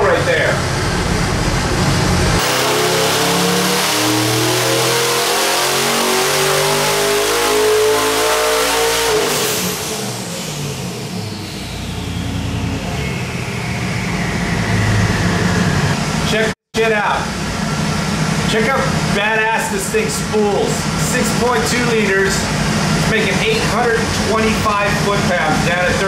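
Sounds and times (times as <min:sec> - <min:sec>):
engine revving at full throttle: 0:00.0 - 0:16.3, 0:20.7 - 0:26.0
turbos whistling down: 0:00.3 - 0:16.4.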